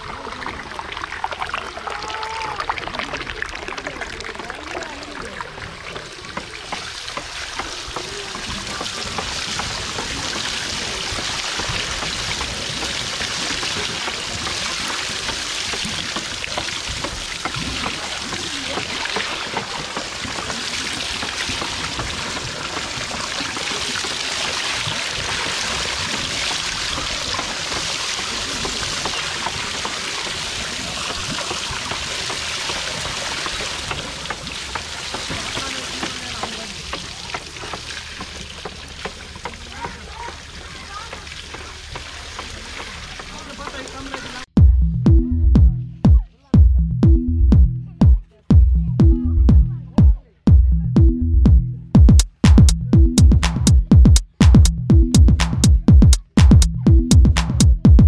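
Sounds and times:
water pouring into wooden trough: 0:00.0 - 0:44.5.

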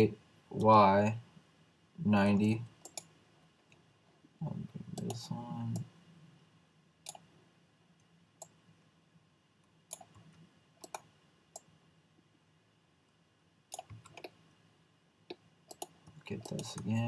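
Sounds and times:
faint low hum: 0:00.0 - 0:17.0
mouse and keyboard clicks: 0:02.8 - 0:03.1, 0:13.7 - 0:14.4, 0:15.3 - 0:17.0.

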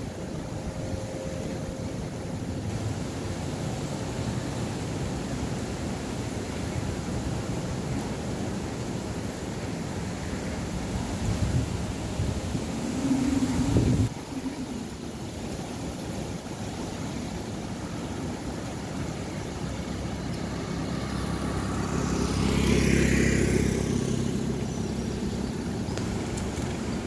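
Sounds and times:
wind noise: 0:00.0 - 0:22.9
motor scooter riding past: 0:18.8 - 0:27.0.

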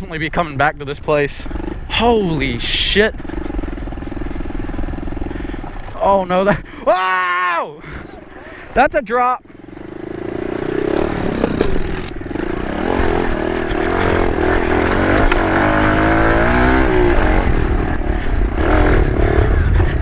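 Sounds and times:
small motorbike engine revving: 0:09.6 - 0:20.0.

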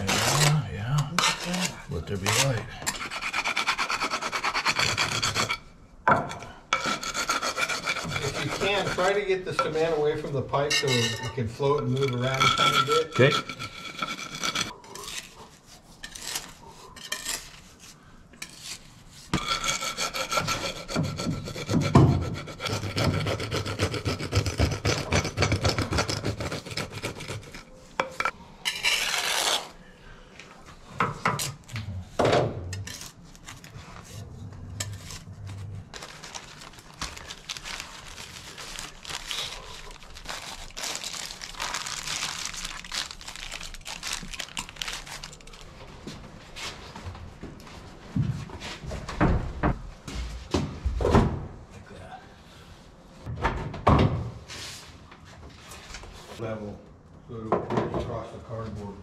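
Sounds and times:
trowel scraping wet mortar: 0:00.0 - 0:05.7, 0:06.3 - 0:10.0, 0:10.9 - 0:29.8
plastic sheeting rustling: 0:35.9 - 0:45.8.

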